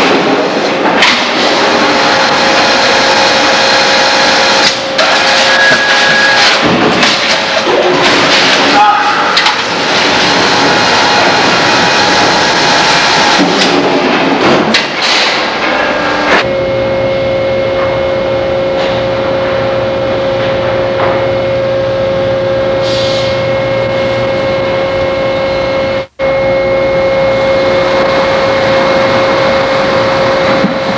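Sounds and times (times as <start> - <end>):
sawmill machinery whining: 1.3 - 6.6, 8.7 - 13.7, 15.7 - 30.9
knocks and clatter: 6.4 - 8.8, 9.4 - 15.8.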